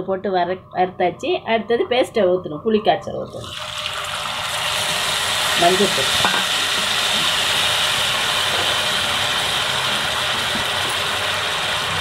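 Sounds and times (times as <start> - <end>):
liquid sizzling in hot oil: 3.3 - 12.0.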